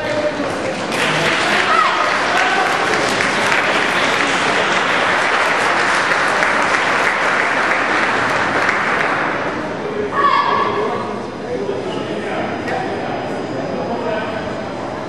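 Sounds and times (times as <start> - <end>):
audience clapping in a large hall: 0.0 - 9.6.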